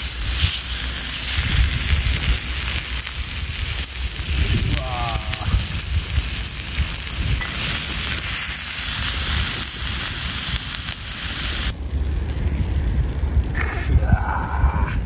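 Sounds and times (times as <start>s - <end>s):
beef sizzling in a skillet: 0.0s - 12.1s.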